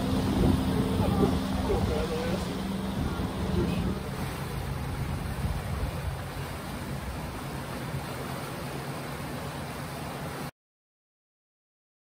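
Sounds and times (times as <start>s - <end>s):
wind rumble on microphone: 0.0s - 8.4s
rushing river water: 0.0s - 10.5s.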